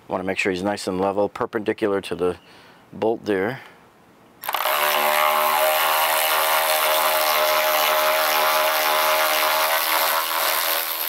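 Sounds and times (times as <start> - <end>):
cordless ratchet whining: 4.4 - 11.0.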